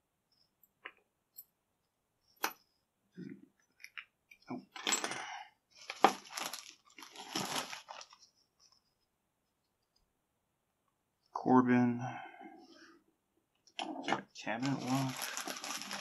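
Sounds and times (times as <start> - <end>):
plastic bag crinkling: 5.8 - 8.3, 14.6 - 16.0.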